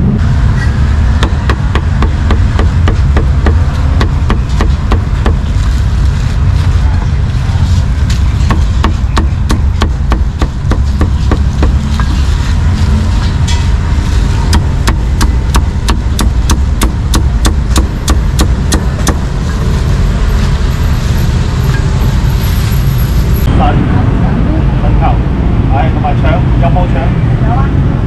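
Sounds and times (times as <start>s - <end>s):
street traffic rumble: 0.0s - 28.0s
cleaver chopping meat: 1.2s - 5.4s, 8.5s - 11.8s, 14.5s - 19.2s.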